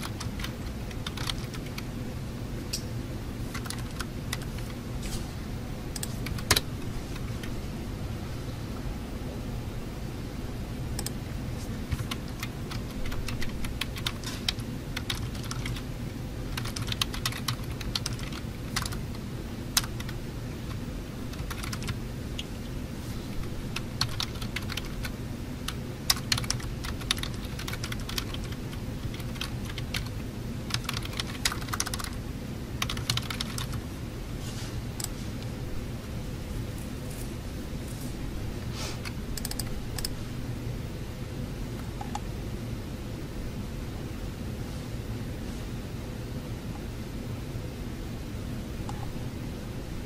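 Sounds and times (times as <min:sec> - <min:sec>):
keyboard keystrokes clicking: 0:00.0 - 0:01.8, 0:03.5 - 0:04.7, 0:05.9 - 0:07.6, 0:11.9 - 0:15.8, 0:16.5 - 0:19.0, 0:21.3 - 0:22.5, 0:23.8 - 0:25.0, 0:25.7 - 0:30.1, 0:30.7 - 0:32.2, 0:32.8 - 0:33.8, 0:39.0 - 0:40.2
steady low hum: 0:00.0 - 0:50.0.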